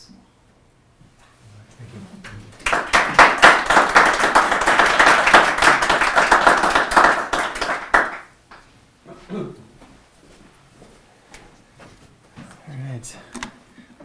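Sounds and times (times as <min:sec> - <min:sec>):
audience applauding: 0:02.4 - 0:08.6.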